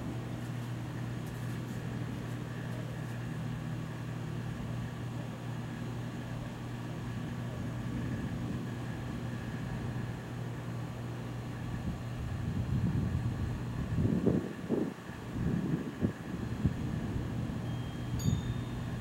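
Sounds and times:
low mechanical hum: 0:00.0 - 0:19.0
faint high whine: 0:16.3 - 0:19.0.

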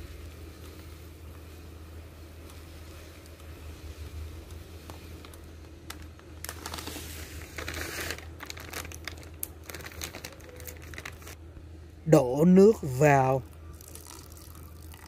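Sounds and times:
plastic bag crinkling: 0:02.7 - 0:11.4
grains pouring into glass pot: 0:13.8 - 0:15.0.

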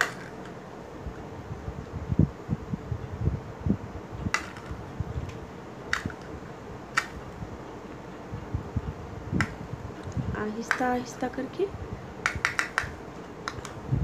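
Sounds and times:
sharp clicks: 0:12.2 - 0:13.8.

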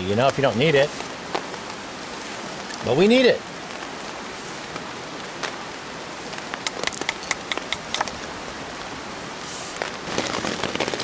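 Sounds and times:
rain on a nylon tarp: 0:00.0 - 0:11.0
sharp ticks: 0:06.6 - 0:08.1.

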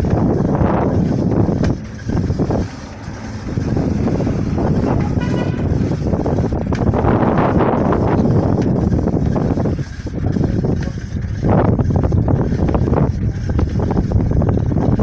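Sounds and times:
vehicle engine and road noise: 0:00.0 - 0:15.0
wind buffeting microphone: 0:00.0 - 0:15.0
horn toot: 0:04.6 - 0:06.0.

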